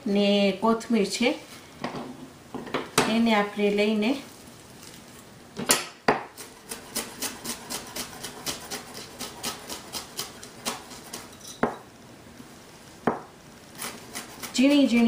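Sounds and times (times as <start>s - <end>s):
knife chopping herbs on board: 6.1s - 11.3s, 13.8s - 14.9s.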